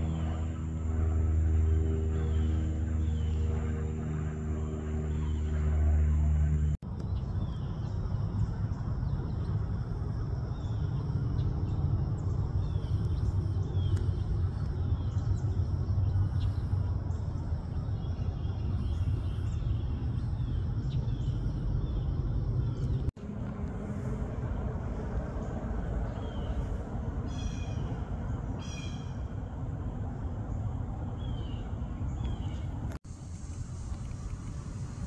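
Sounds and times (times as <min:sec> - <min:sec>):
jet airliner flying overhead: 0:00.0 - 0:35.0
small birds chirping: 0:07.0 - 0:23.1, 0:30.5 - 0:33.0.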